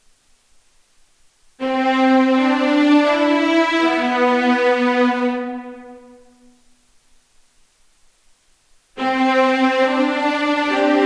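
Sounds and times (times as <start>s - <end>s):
orchestral strings chord: 1.6s - 6.5s, 9.0s - 11.0s.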